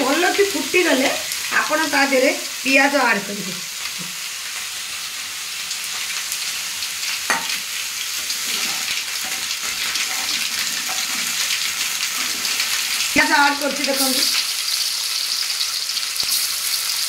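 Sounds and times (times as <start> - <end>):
spices sizzling in hot oil: 0.0 - 17.0.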